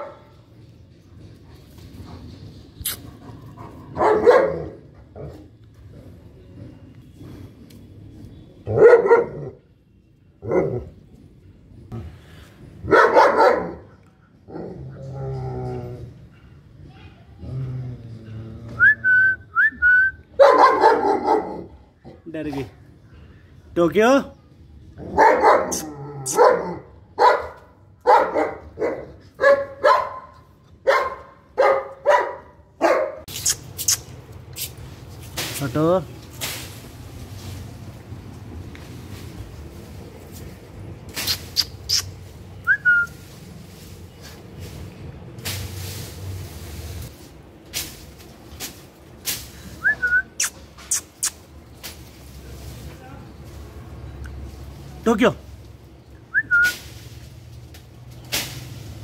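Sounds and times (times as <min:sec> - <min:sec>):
dog barking: 0:04.0 - 0:04.8, 0:08.7 - 0:09.6, 0:12.8 - 0:14.0, 0:20.4 - 0:21.7, 0:25.0 - 0:33.3.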